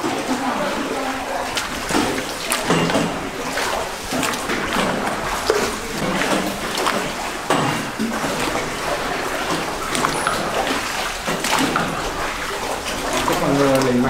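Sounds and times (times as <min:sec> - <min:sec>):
oars dipping in water: 0:00.0 - 0:14.0
water dripping: 0:00.0 - 0:14.0
water splashing around boats: 0:00.0 - 0:14.0.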